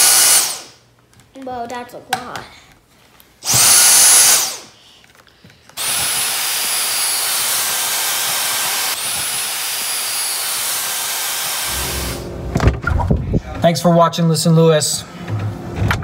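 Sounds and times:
handheld vacuum motor whine: 0.0 - 0.8, 3.4 - 4.7, 5.8 - 12.3.

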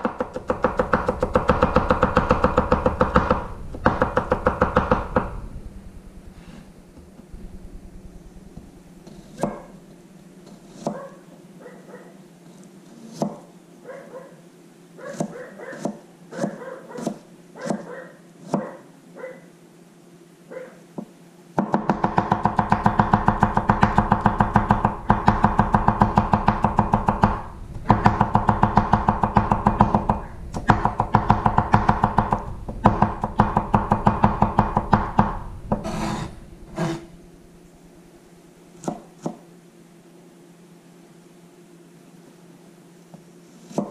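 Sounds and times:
knife chopping on wooden board: 10.7 - 11.0, 15.2 - 18.7.

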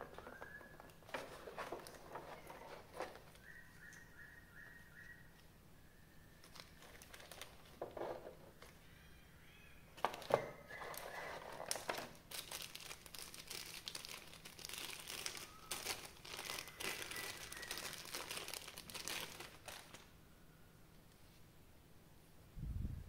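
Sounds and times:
packaging crinkling: 0.0 - 4.0, 6.4 - 8.7, 10.0 - 20.1.

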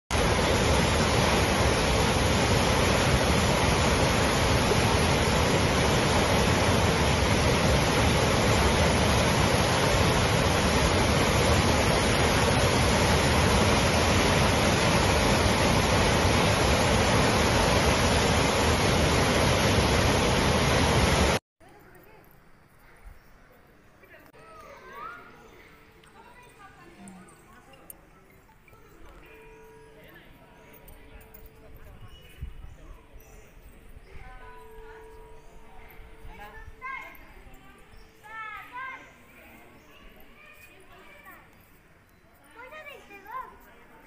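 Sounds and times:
floodwater rushing through rapids: 0.1 - 21.4.

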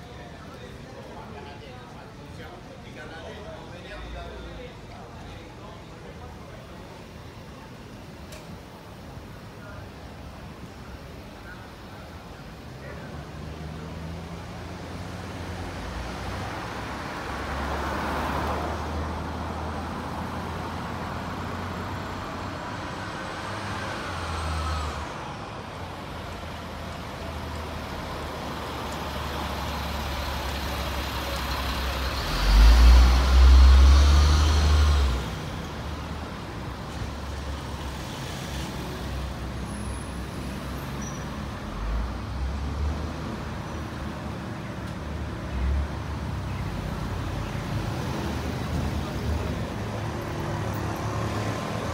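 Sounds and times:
cars and trucks driving past: 11.1 - 51.9
heavy vehicle passing close: 13.1 - 44.4, 45.1 - 51.9.

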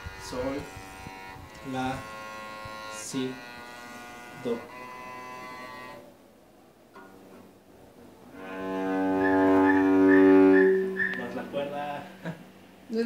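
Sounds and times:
cello note bowed: 8.3 - 12.2
fainter held tone: 8.4 - 12.2.

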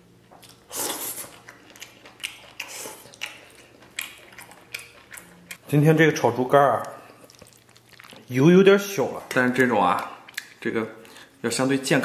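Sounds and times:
chewing with clicks and smacks: 0.3 - 5.7, 6.7 - 8.3, 9.3 - 11.2.

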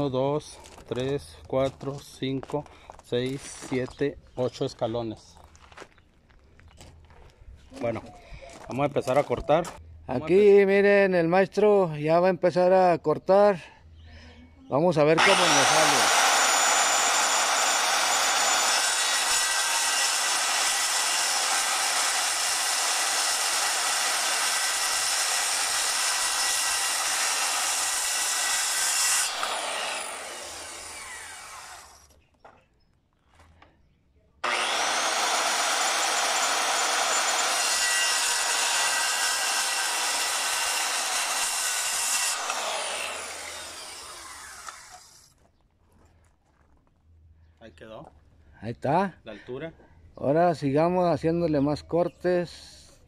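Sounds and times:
circular saw cutting wood: 15.2 - 32.1, 34.4 - 45.3.

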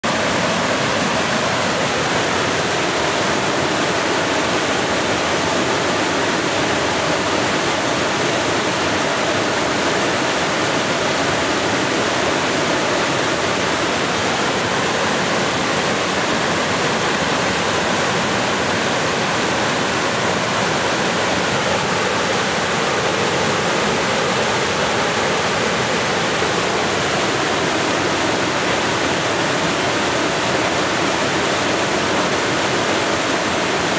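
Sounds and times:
waterfall rushing: 0.0 - 33.9.

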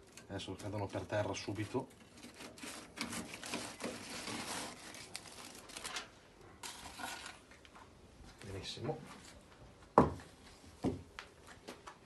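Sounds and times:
aluminium foil crinkling: 0.0 - 7.7.

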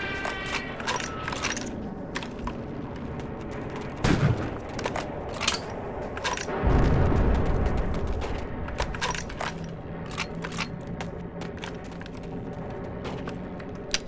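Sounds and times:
heavy deep bangs: 6.5 - 10.0.

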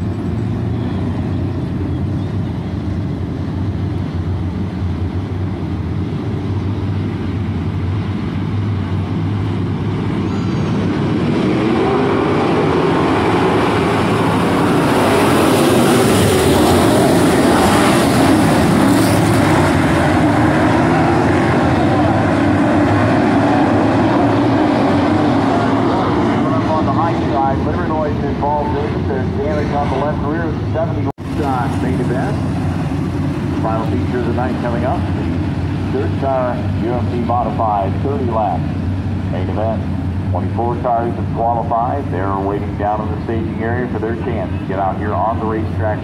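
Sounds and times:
race car engines: 0.0 - 46.0.

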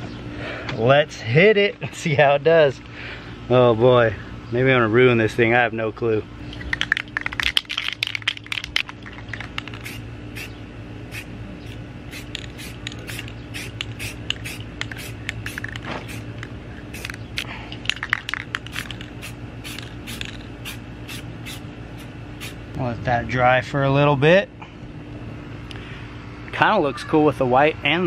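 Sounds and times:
steady low hum: 0.0 - 28.0
spray paint can spraying: 6.6 - 10.5, 11.1 - 22.6.

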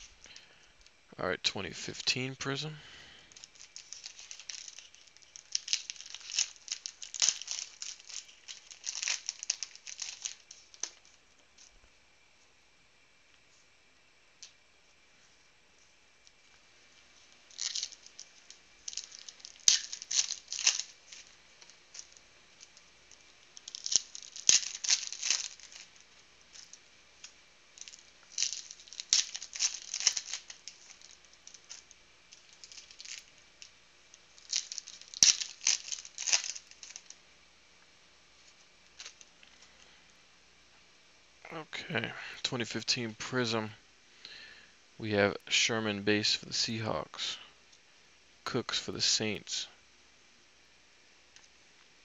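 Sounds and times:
foil wrappers tearing and crinkling: 3.2 - 11.2, 17.5 - 37.2, 38.8 - 39.7.

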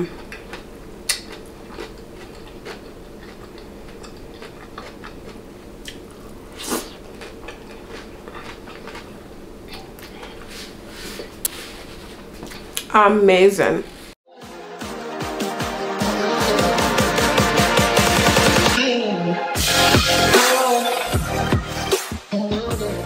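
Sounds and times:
biting and chewing food: 0.1 - 10.5.

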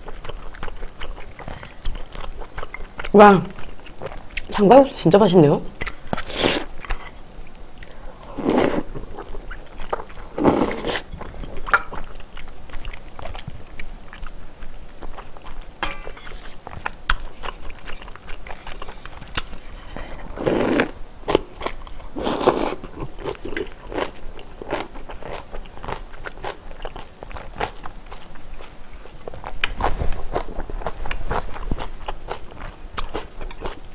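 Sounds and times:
wet chewing and mouth smacking: 0.0 - 4.5, 5.8 - 15.7, 16.5 - 19.8, 20.8 - 33.9
loud noodle slurps: 6.2 - 6.7, 8.3 - 8.9, 10.3 - 11.1, 20.3 - 21.0, 22.2 - 22.8.

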